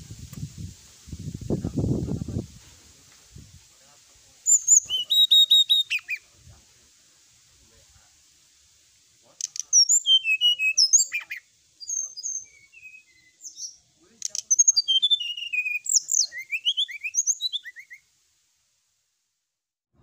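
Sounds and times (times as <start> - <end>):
bird singing whistled notes: 4.4 - 6.3, 9.4 - 18.1.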